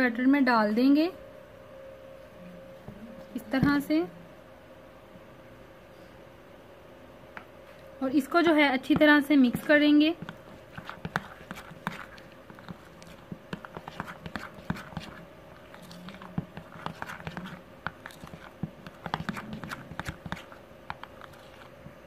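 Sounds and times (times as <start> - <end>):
metal spoon stirring batter: 8.2 - 22.0.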